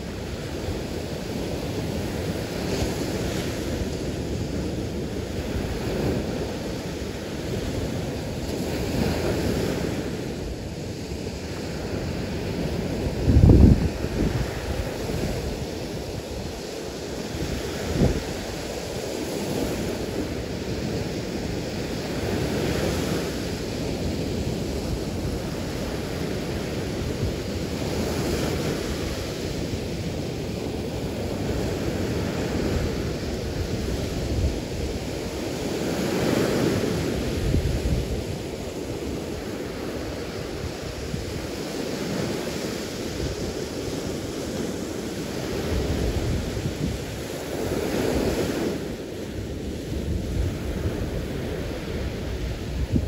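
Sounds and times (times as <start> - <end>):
surf breaking on sandy beach: 0.0 - 53.0.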